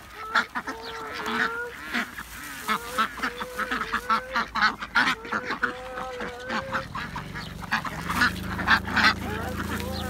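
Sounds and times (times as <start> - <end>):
ducks quacking: 0.0 - 10.0
geese honking: 0.0 - 10.0.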